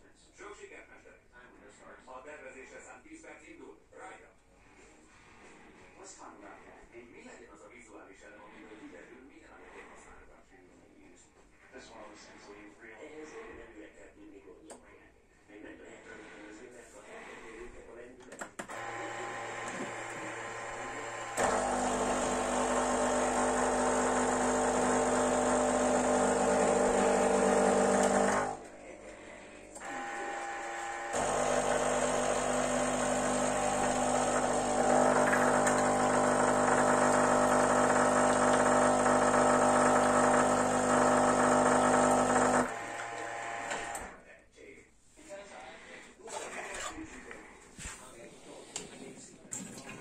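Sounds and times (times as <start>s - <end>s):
coffee grinder running: 18.7s - 28.7s, 29.4s - 44.1s
espresso machine pump: 18.7s - 44.1s.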